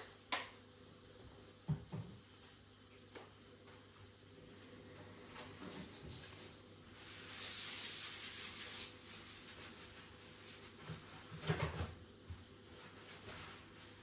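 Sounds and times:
cloth scrubbing a counter: 5.8 - 12.0, 12.7 - 14.0.

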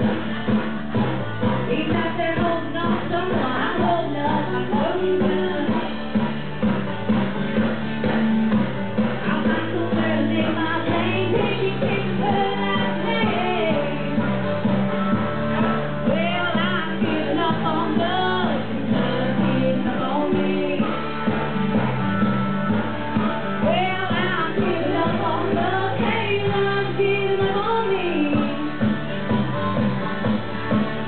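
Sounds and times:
rock backing track with guitar: 0.0 - 31.0
woman singing karaoke: 1.4 - 6.4, 9.0 - 21.9, 23.4 - 29.8.

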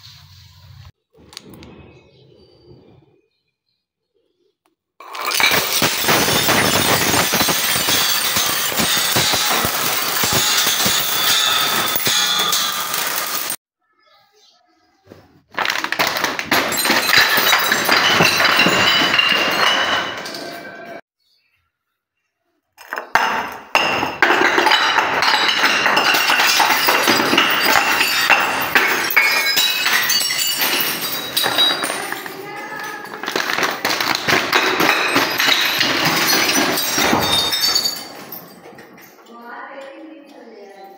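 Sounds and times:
glass bottles smashing on stone: 5.0 - 13.6, 15.6 - 21.0, 22.8 - 39.3.

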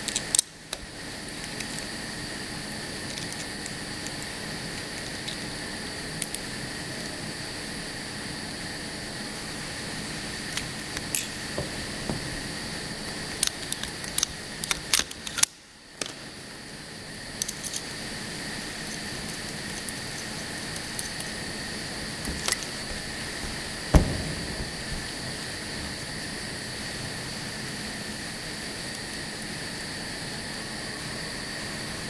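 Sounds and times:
machine hum with high whine: 0.0 - 32.0
loud knock: 23.9 - 25.4.

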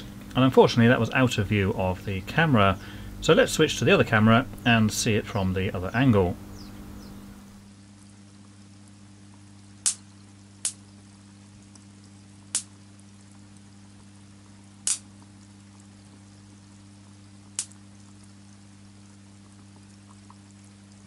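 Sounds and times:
steady low hum: 0.0 - 21.0
sharp pops: 9.8 - 10.8, 12.5 - 12.7, 14.8 - 15.1, 17.6 - 17.8.

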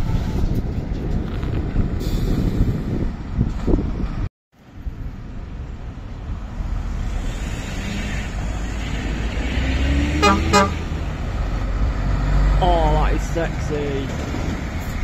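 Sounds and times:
road traffic: 0.0 - 15.0
heavy truck diesel engine: 4.8 - 15.0.

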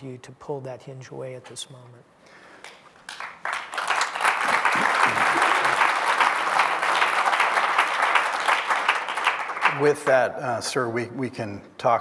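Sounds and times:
audience applauding: 2.7 - 10.1.

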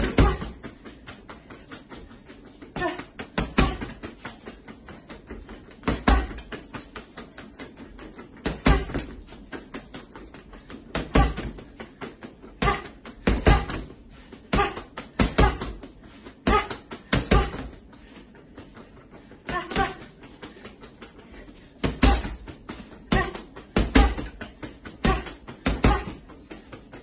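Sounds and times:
punches thumping punching ball: 0.0 - 1.2, 2.7 - 4.7, 5.7 - 7.2, 8.3 - 17.8, 21.8 - 26.8.

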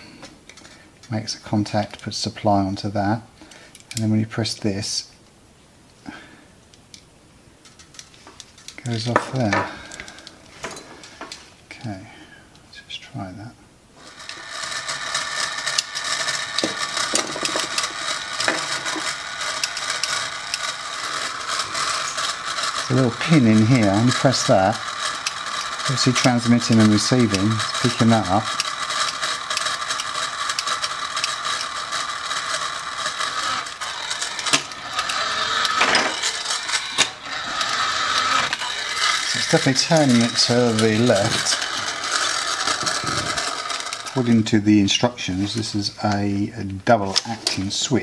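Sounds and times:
scattered clicks: 14.0 - 44.5
toy car motor whirring: 14.0 - 46.3.

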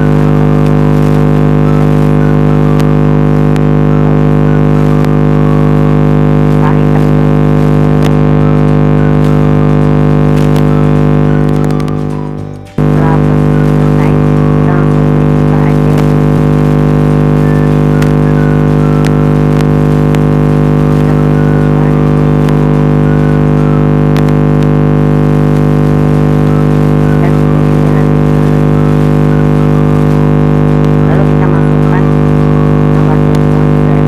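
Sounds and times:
loud buzzing drone: 0.0 - 34.0.

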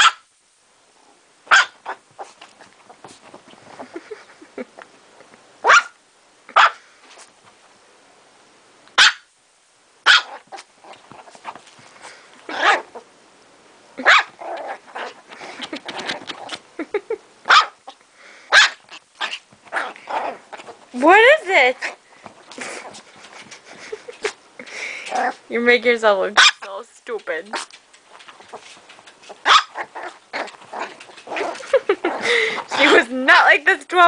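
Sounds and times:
small dog yapping: 0.0 - 0.2, 1.5 - 2.4, 5.6 - 6.0, 6.6 - 6.8, 9.0 - 9.3, 10.0 - 11.4, 12.5 - 13.0, 14.0 - 16.6, 17.5 - 17.9, 18.5 - 20.8, 26.4 - 26.7, 29.3 - 32.2.

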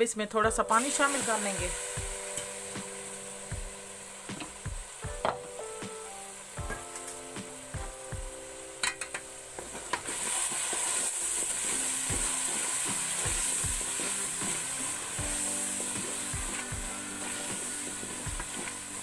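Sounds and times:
food sizzling in hot fat: 0.0 - 19.0
wooden spoon stirring in pot: 9.6 - 19.0.

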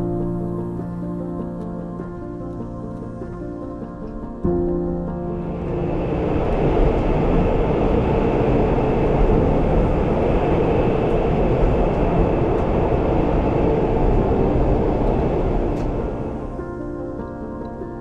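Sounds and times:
train running: 3.5 - 17.8.

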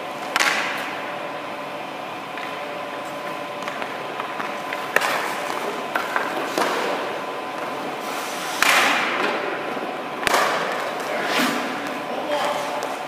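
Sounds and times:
skate blades scraping ice: 3.6 - 7.2, 10.2 - 13.0.

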